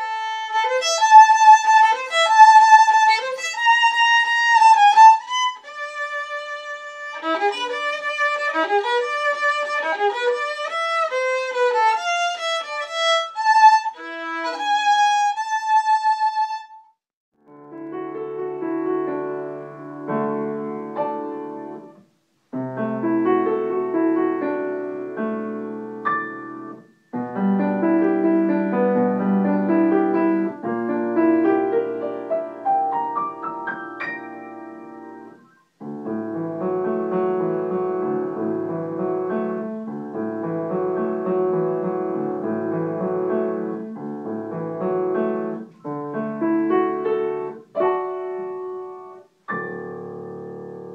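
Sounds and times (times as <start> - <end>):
grand piano playing: 0.0 - 16.4, 17.5 - 22.0, 22.6 - 50.9
violin playing: 0.0 - 17.0.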